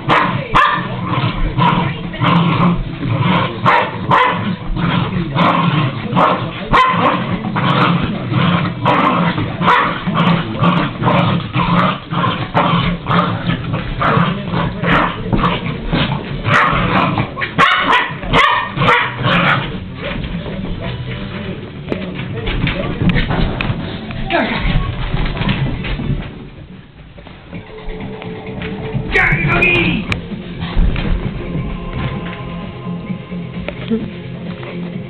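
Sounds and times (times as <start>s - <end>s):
dog barking: 0.0s - 1.0s, 3.6s - 4.6s, 6.2s - 7.3s, 9.0s - 10.0s, 16.5s - 19.7s.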